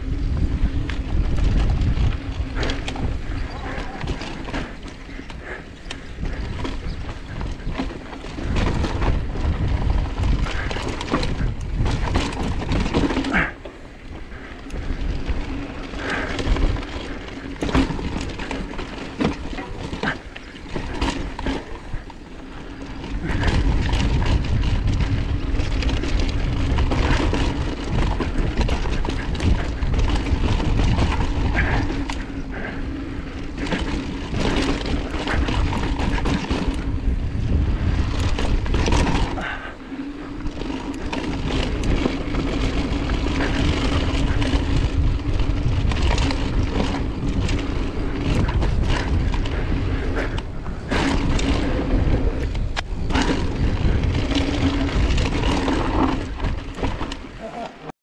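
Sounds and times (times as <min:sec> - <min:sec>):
bike clicks and rattles: 0:00.0 - 0:57.9
tyres rolling over rocky dirt: 0:00.0 - 0:57.9
wind buffeting camera: 0:00.0 - 0:57.9.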